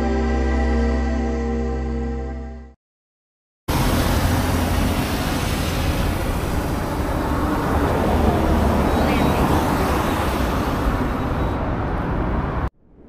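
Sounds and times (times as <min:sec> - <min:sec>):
ambient background music: 0:00.0 - 0:02.8.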